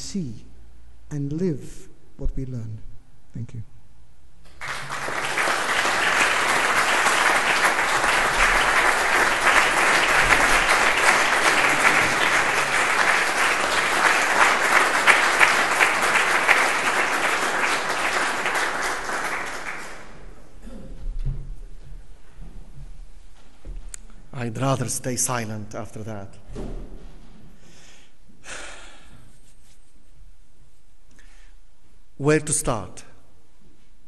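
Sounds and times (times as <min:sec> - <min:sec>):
audience applauding: 0:04.5 - 0:20.6.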